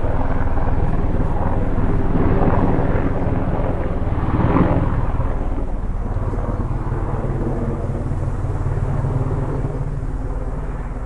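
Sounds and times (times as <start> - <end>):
helicopter rumbling: 0.0 - 11.0.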